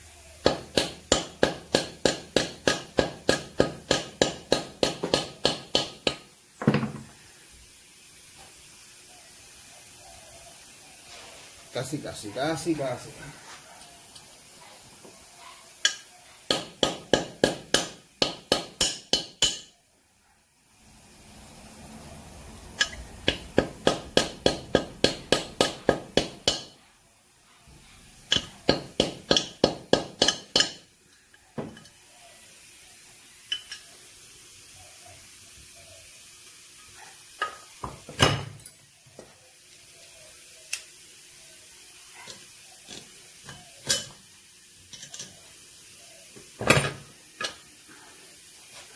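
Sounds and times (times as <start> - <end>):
hammer tapping on metal: 0.4 - 6.2, 15.8 - 19.7, 22.8 - 26.8, 28.3 - 30.8.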